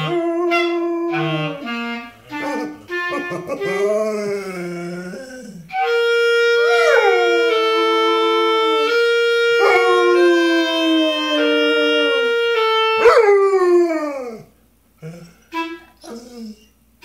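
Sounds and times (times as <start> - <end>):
clarinet playing slow notes: 0.0 - 5.0, 5.7 - 14.3, 15.5 - 16.5
dog howling: 3.7 - 15.3, 16.0 - 16.7.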